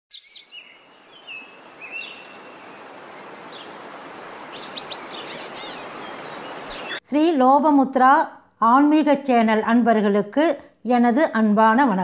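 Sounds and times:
birds chirping: 0.1 - 7.0
small waterfall rushing: 0.9 - 7.0.

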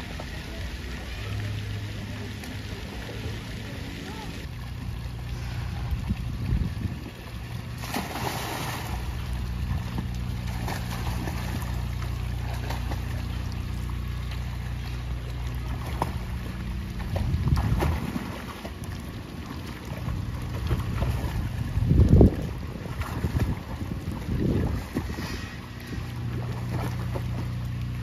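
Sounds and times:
swimming splashes: 0.0 - 28.0
low rumble: 4.4 - 19.3
child splashing into pool: 7.7 - 13.7.

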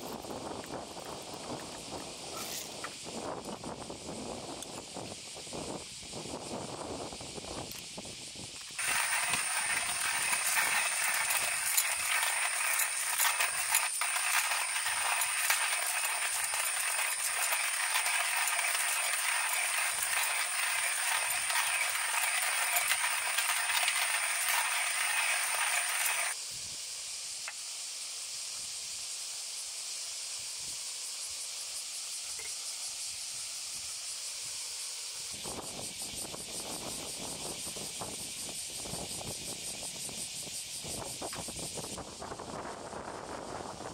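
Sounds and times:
coffee grinder crunching beans: 8.6 - 26.4.

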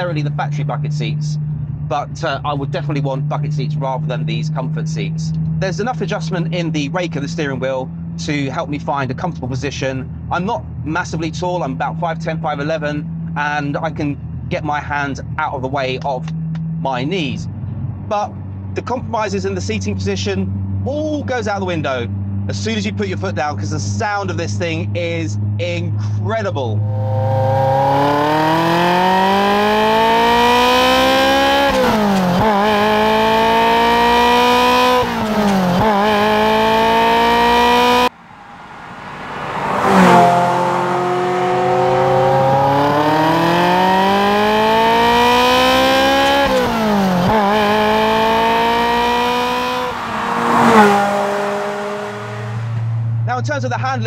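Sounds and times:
car engine accelerating in cabin: 21.5 - 53.4
car passing revving: 26.7 - 53.4.

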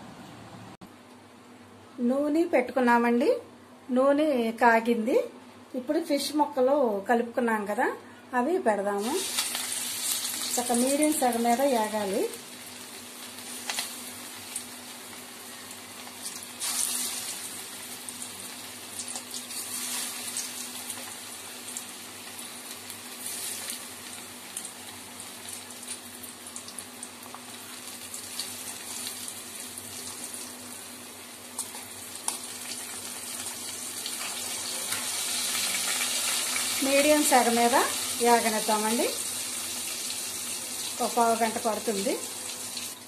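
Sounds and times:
fish frying in sizzling oil: 9.0 - 43.0
oil crackling and popping: 18.9 - 30.6.

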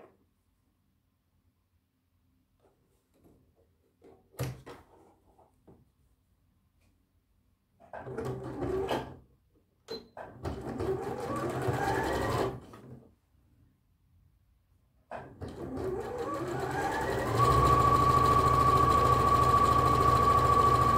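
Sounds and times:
sewing machine stitching: 7.9 - 9.2, 9.9 - 12.9, 15.1 - 20.9.

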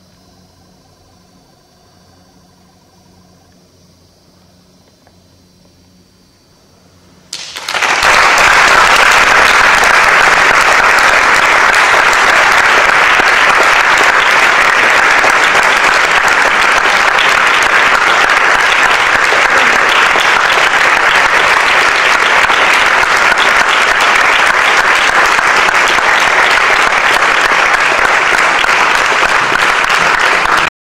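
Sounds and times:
audience applauding: 7.3 - 30.7.

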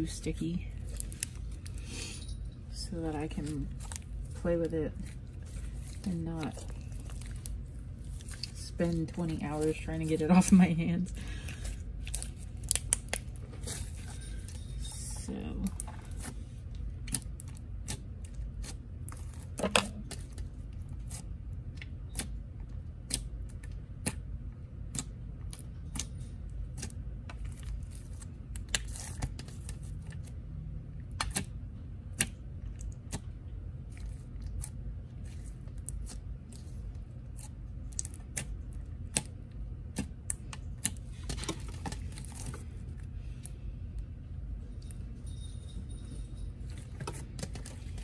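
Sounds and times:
slime squishing and popping: 11.6 - 13.8, 37.3 - 42.5.

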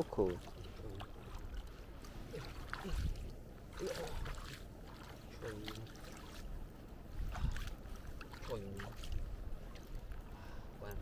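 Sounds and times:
seawater sloshing around hands: 0.0 - 10.1.

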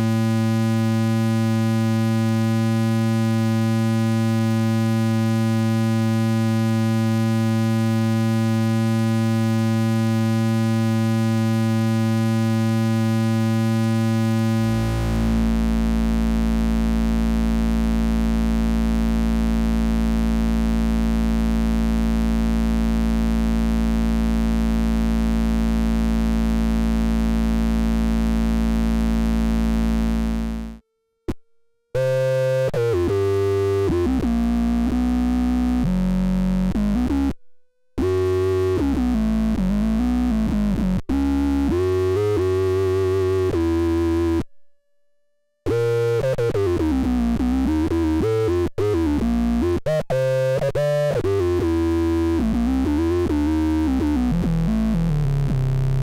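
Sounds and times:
square-wave synth tone: 13.1 - 17.0, 45.7 - 56.0.

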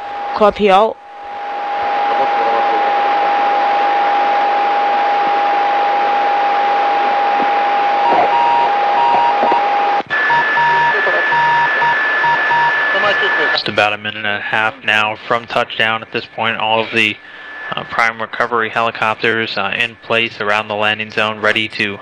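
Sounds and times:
steady tone: 0.0 - 22.0
radio static hiss: 1.7 - 22.0
short beeps: 8.0 - 13.8.

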